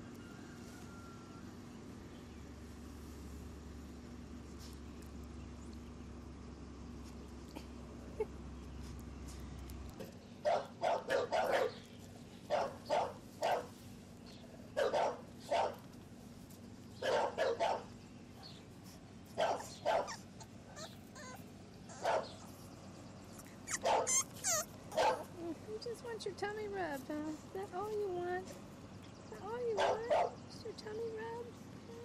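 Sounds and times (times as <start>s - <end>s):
puppy barking: 10.4s - 11.9s, 12.5s - 13.7s, 14.8s - 15.8s, 17.0s - 17.9s, 19.4s - 22.4s, 23.6s - 25.3s, 29.8s - 30.4s.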